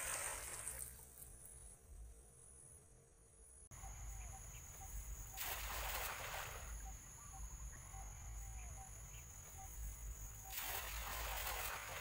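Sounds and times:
cast net splashing on water: 0.0s - 1.0s, 5.4s - 6.8s, 10.5s - 12.0s
insects buzzing: 0.0s - 12.0s.

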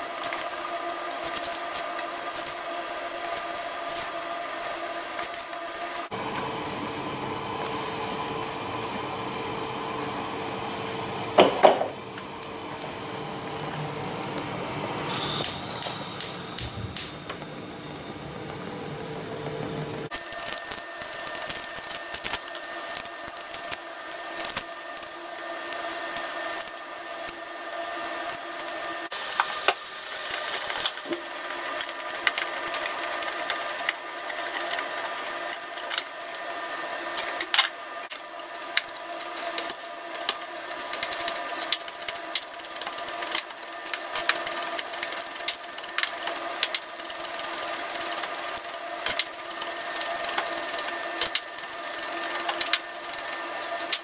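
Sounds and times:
steady hum: 0.0s - 54.0s
can opener clicking and crunching: 29.3s - 54.0s.

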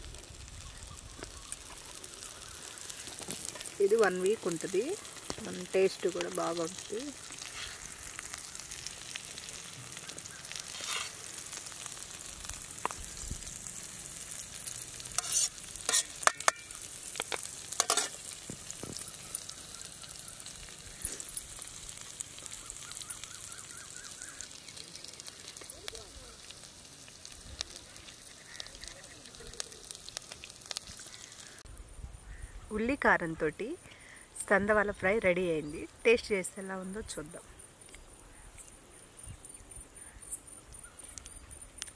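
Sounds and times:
oil sizzling with frying fish: 0.0s - 37.4s
sharp clicks and pops: 1.1s - 19.6s, 40.7s - 41.9s.

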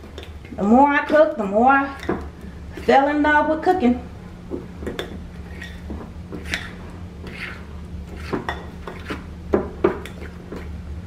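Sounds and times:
fork clinking and scraping glass bowl: 5.0s - 5.8s, 6.4s - 9.2s.

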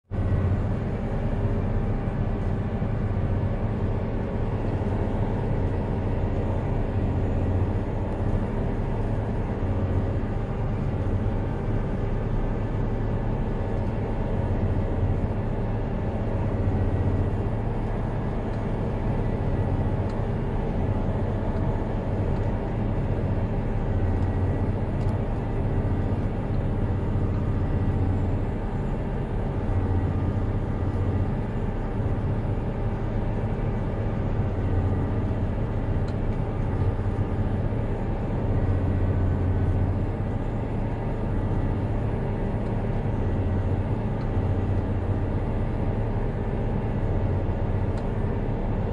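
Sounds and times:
tractor engine under heavy load: 0.1s - 48.9s.

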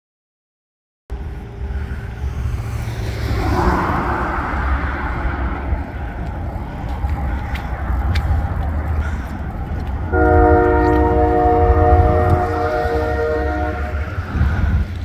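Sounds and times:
low traffic rumble: 1.1s - 15.0s
vehicle passing: 1.1s - 15.0s.

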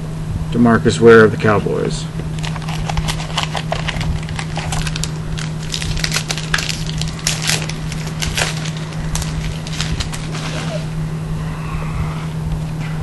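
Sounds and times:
low hum: 0.0s - 13.0s
foil wrapper crinkling: 2.3s - 10.9s.

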